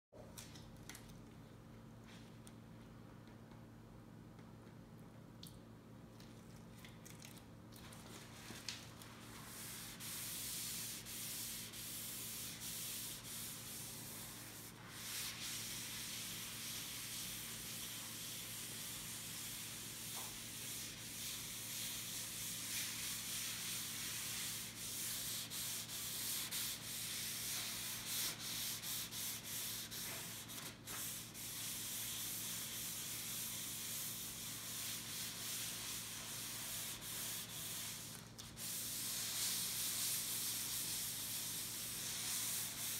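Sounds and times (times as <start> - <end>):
cloth rag rubbing on wood: 9.3 - 42.9.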